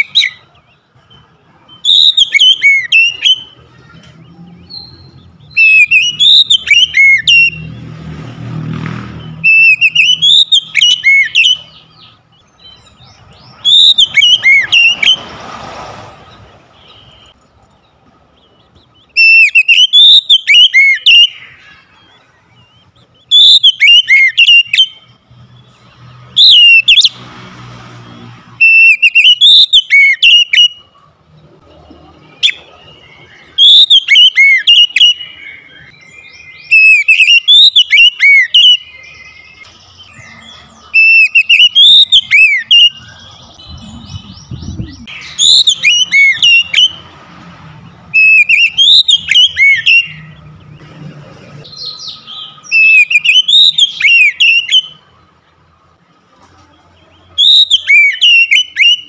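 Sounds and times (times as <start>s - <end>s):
bird singing whistled phrases: 1.7s - 3.6s, 4.4s - 7.7s, 9.2s - 12.0s, 12.6s - 15.3s, 19.0s - 21.8s, 22.6s - 25.2s, 26.4s - 27.1s, 28.6s - 30.9s, 32.3s - 47.0s, 48.1s - 50.4s, 51.7s - 55.0s, 57.2s - 59.0s.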